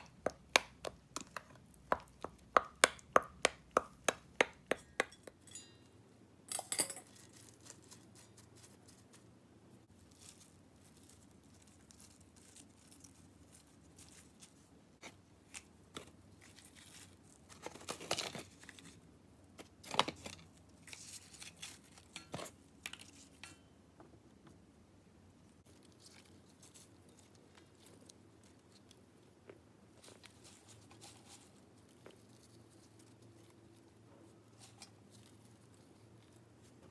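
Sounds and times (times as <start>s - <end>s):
bean sprouts rustling into a pan: 7.0s - 14.8s.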